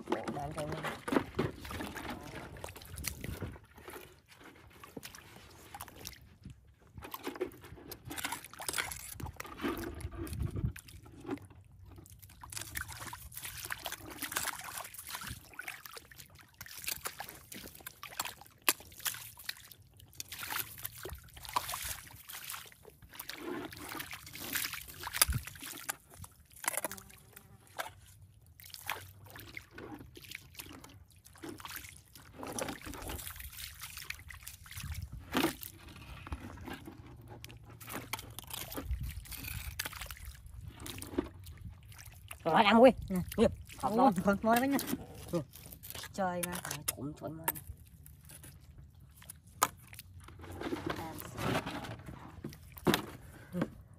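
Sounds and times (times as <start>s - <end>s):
water splashes: 0.0s - 53.9s
feet squelching through mud: 0.3s - 11.4s, 12.0s - 36.7s, 37.4s - 51.4s
metal hook scraping through mud: 6.9s - 15.5s, 16.6s - 28.2s, 29.3s - 41.7s, 43.8s - 53.2s.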